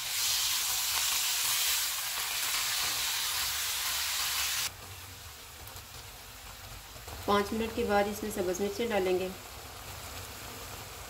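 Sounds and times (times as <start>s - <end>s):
meat sizzling in a wok: 0.0s - 11.0s.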